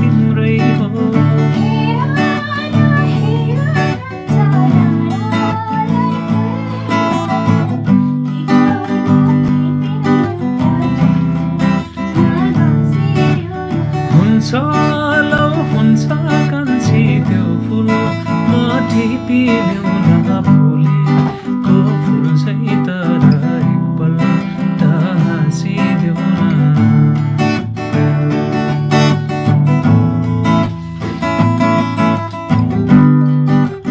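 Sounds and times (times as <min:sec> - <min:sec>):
man singing: 0:00.0 - 0:29.8
acoustic guitar strumming: 0:00.0 - 0:33.9.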